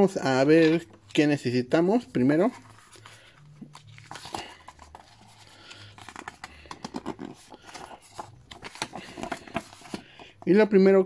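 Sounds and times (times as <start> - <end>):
packaging rustling: 2.4 - 10.4.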